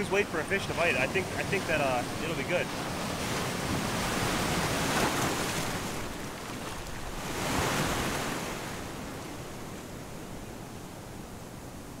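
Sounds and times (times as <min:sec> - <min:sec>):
ocean surf breaking: 0:00.0 - 0:12.0.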